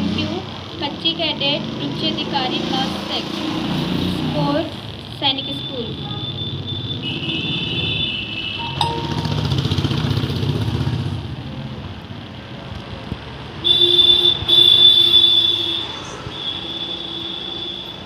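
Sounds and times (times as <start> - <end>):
high-pitched horn tones: 8.6 - 10.2.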